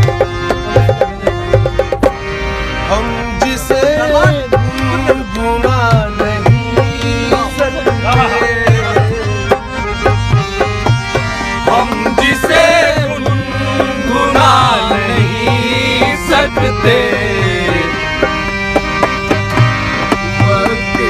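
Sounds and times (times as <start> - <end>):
hand drum beat: 0.0 - 2.2, 3.7 - 21.0
man singing: 2.9 - 9.7, 11.6 - 18.3, 20.3 - 21.0.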